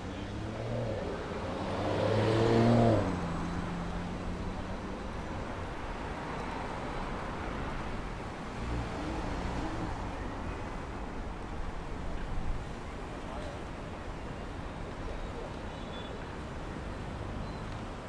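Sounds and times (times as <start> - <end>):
steady traffic noise: 0.0 - 18.0
vehicle passing by: 0.2 - 4.8.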